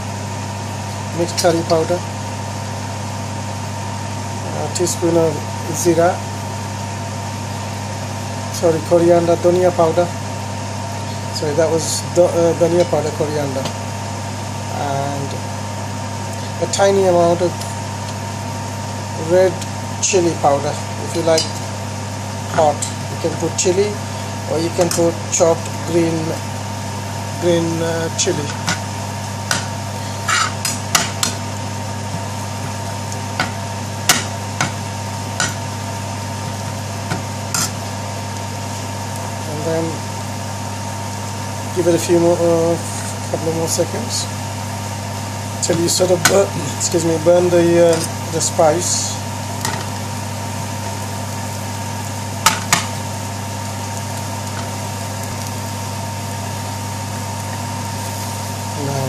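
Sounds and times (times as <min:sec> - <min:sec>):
steady low hum: 0:00.0 - 0:59.0
metal spoon scraping frying pan: 0:29.5 - 0:31.4, 0:37.5 - 0:37.8.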